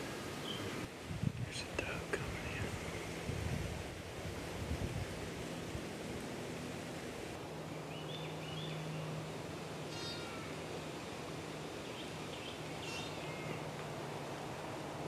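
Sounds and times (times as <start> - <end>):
short high bird calls: 9.9 - 10.6, 12.4 - 13.6.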